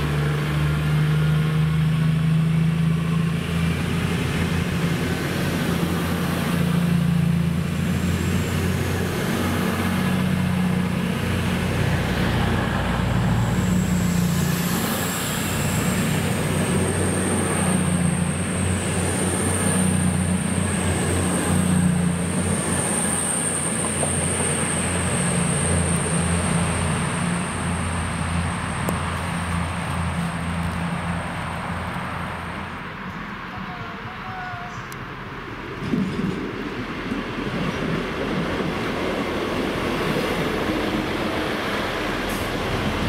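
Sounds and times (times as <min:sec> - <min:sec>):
diesel train drone: 0:00.0 - 0:43.0.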